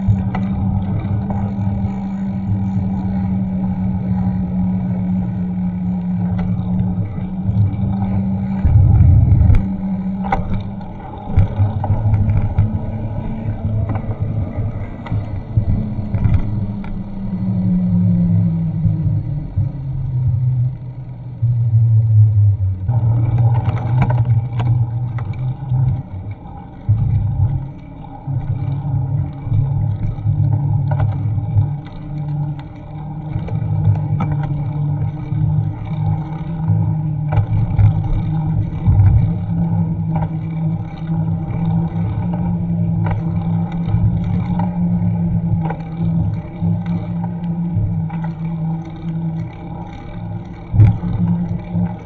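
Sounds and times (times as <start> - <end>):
bicycle road rumble: 0.0 - 52.0
wind buffeting microphone: 6.3 - 19.8.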